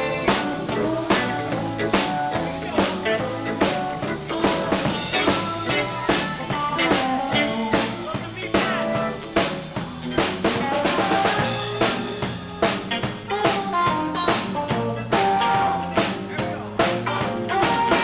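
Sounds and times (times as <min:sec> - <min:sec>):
bass guitar: 0:00.0 - 0:18.0
drum kit beat: 0:00.0 - 0:18.0
electric guitar: 0:00.0 - 0:18.0
trumpet: 0:17.1 - 0:18.0.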